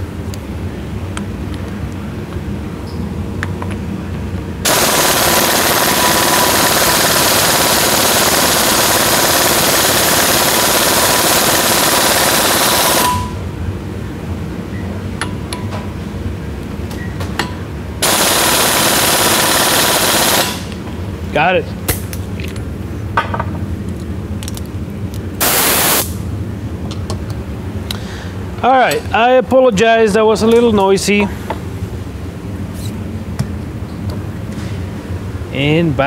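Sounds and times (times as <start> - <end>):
pneumatic impact wrench hammering: 4.6 - 13.3, 18.0 - 20.8, 25.4 - 26.2.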